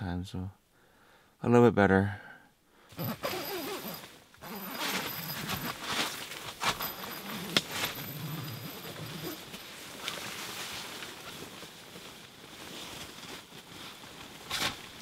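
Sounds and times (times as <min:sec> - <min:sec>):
tent fabric rustling: 0:02.9 - 0:15.0
tent door unzipping: 0:03.0 - 0:10.3, 0:14.4 - 0:15.0.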